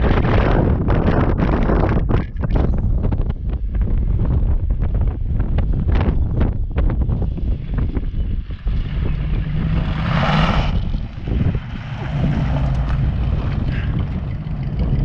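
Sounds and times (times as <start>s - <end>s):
wind noise on microphone: 0.0s - 15.0s
tyres on gravel: 7.3s - 15.0s
car engine driving past: 8.6s - 15.0s.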